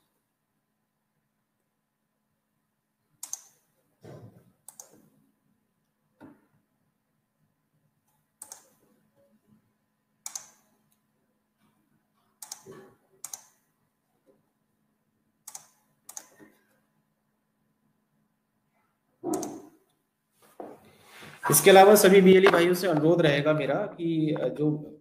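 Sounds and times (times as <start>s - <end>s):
computer mouse and key clicks: 3.2s - 3.7s, 4.6s - 5.2s, 8.0s - 9.0s, 10.2s - 11.0s, 11.6s - 13.6s, 15.4s - 16.7s, 19.2s - 20.0s.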